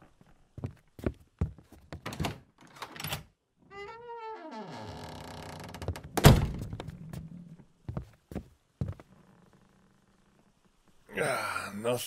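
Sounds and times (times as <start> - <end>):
footsteps on wooden boards: 0.2 - 2.1, 7.9 - 9.1
wooden door creaking: 2.0 - 7.2
door shutting with heavy thud: 6.0 - 6.9.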